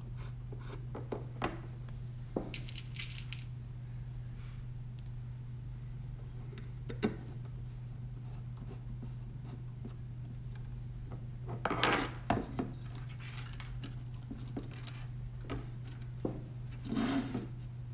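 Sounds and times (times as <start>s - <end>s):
steady low hum: 0.0s - 17.9s
parts rattling: 2.5s - 3.5s.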